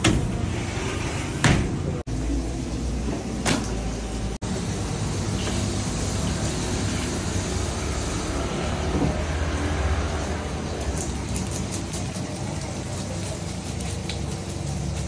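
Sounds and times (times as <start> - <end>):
water spraying from hose: 4.0 - 15.0.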